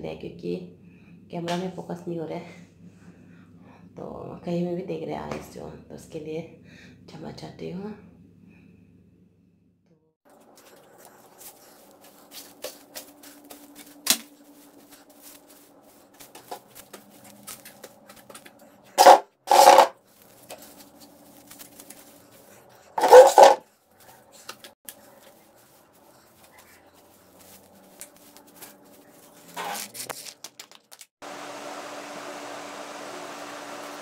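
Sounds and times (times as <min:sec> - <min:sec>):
faint hum: 0:00.0 - 0:09.6, 0:10.3 - 0:19.0
scratchy rubbing bursts: 0:10.4 - 0:30.4.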